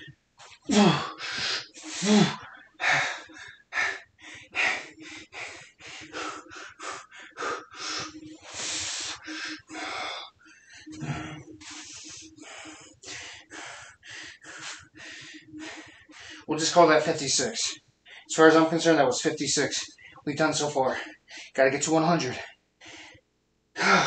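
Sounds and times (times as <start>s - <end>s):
man breathing hard: 0.6s - 18.9s, 22.2s - 23.2s
man grunting: 0.7s - 1.1s, 2.0s - 2.4s.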